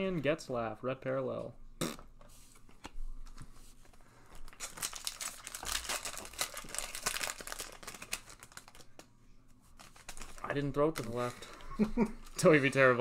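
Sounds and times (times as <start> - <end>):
foil wrapper crinkling and tearing: 4.4 - 9.1, 9.8 - 12.9.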